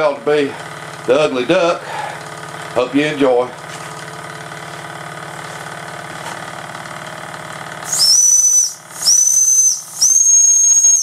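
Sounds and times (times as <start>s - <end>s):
shrill steam whistle blasts: 7.8s - 11.0s.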